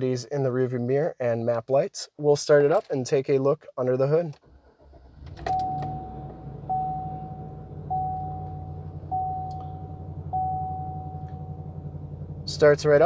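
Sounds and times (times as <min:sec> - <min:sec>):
truck engine starting and idling: 0:04.4 - 0:13.0
dashboard warning chime: 0:05.4 - 0:11.8.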